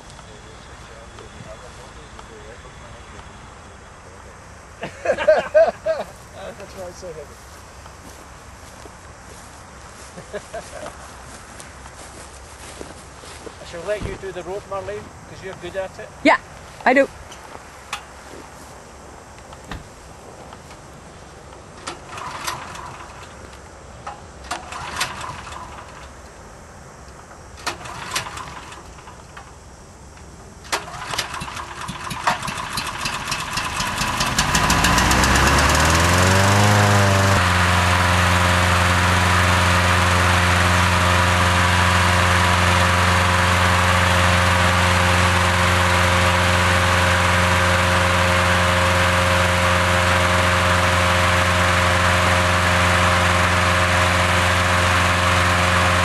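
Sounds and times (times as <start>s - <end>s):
petrol engine fan running: 5.0s - 16.3s, 16.9s - 56.0s
starter cord tugs: 21.8s - 23.4s, 24.4s - 26.1s, 30.7s - 56.0s.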